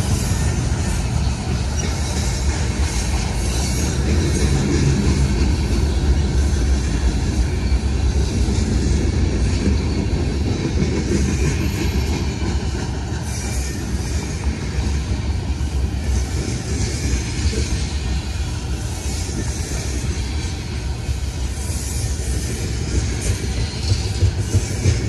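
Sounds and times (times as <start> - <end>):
train wheels rumbling on rail: 0.0 - 25.0.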